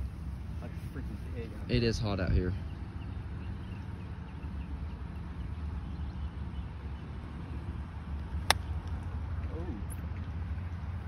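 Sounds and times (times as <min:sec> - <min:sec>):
golf club striking ball: 0:08.4 - 0:09.0.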